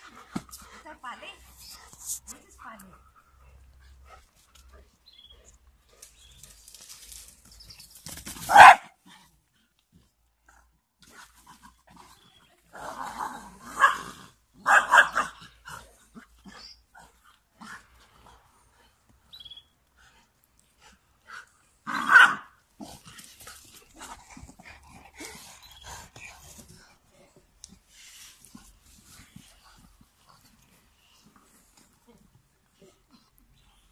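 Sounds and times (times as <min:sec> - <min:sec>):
dogs barking: 0:08.5 - 0:08.9, 0:14.6 - 0:15.4, 0:22.0 - 0:22.5.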